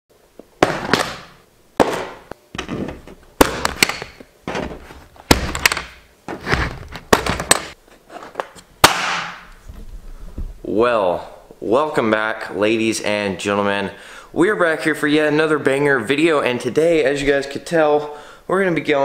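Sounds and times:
plastic latches snapping: 5.3s - 6.0s.

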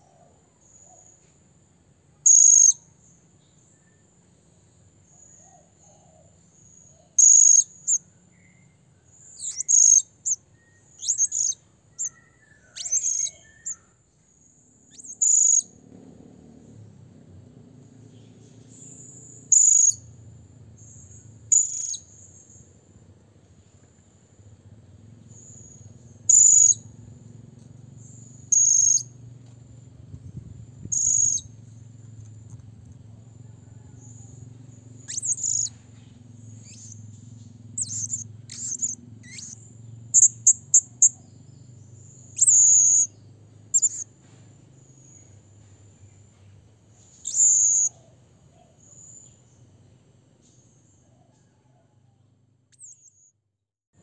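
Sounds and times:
parrot high-pitched calls: 9.3s - 10.4s, 11.0s - 13.9s, 35.0s - 35.8s, 37.8s - 41.2s, 42.4s - 43.1s, 43.7s - 44.1s, 47.2s - 48.0s, 52.8s - 53.3s.

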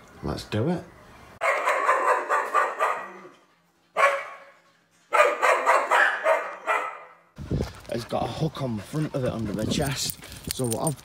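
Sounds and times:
dog barking: 1.4s - 3.3s, 4.0s - 7.2s.

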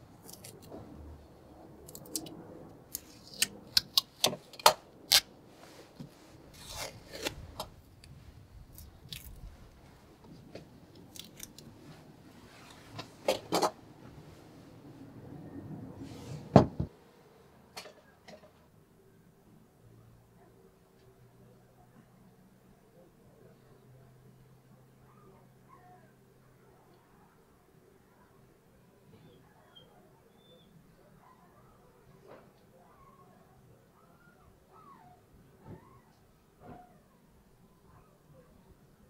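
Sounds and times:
masking tape being peeled off: 0.2s - 0.7s, 6.5s - 8.1s.

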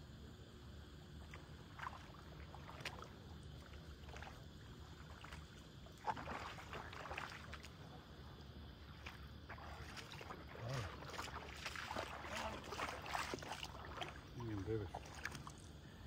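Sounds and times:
small waves lapping: 1.1s - 16.0s.

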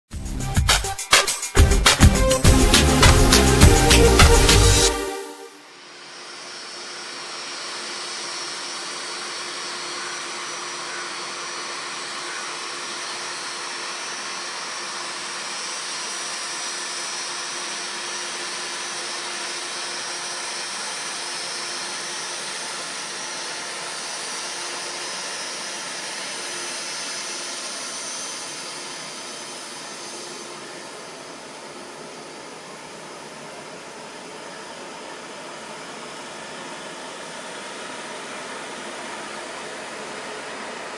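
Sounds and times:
jet engines whining: 0.6s - 6.0s.

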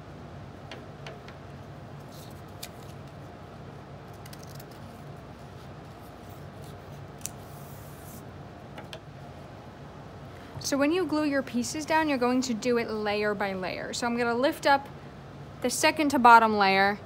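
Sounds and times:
low room hum: 0.0s - 17.0s
paper clicks and rustles: 2.1s - 3.2s.

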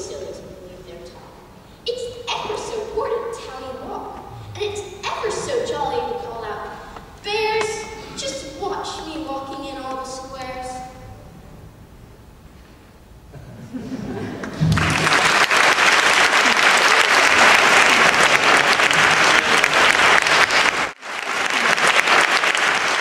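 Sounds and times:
audience applauding: 14.4s - 23.0s.

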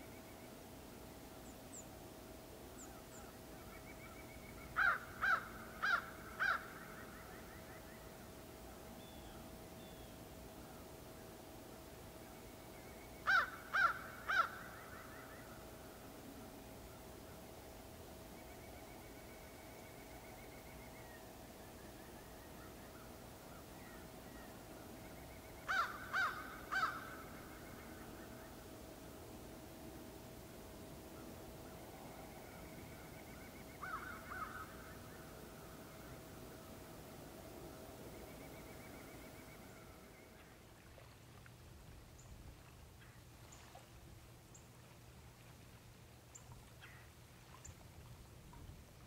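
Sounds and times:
low hum: 0.0s - 49.0s
crow cawing: 4.8s - 7.0s, 13.3s - 15.4s, 25.7s - 27.3s, 33.8s - 35.2s.

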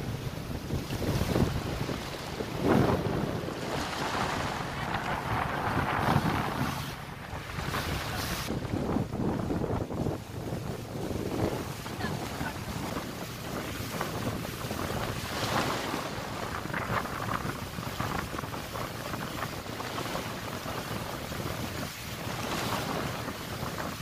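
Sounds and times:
choppy sea water rushing: 0.0s - 24.0s
wind buffeting microphone: 0.0s - 24.0s.

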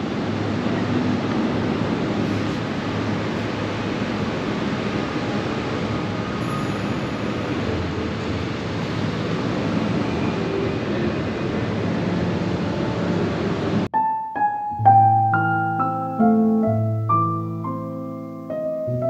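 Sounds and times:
low hum and hiss: 14.8s - 19.0s.

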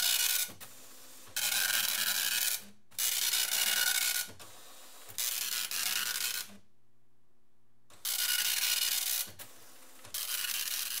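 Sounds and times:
dot matrix printer printing: 0.0s - 6.6s, 7.9s - 11.0s.

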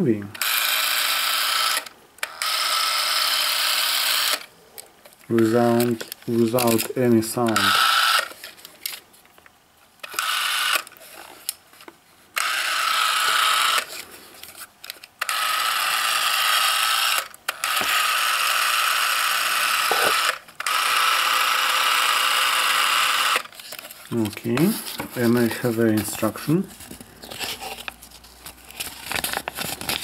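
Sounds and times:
movie camera motor whirring: 0.4s - 4.5s, 7.5s - 8.3s, 10.0s - 10.9s, 12.4s - 14.0s, 15.2s - 23.5s.

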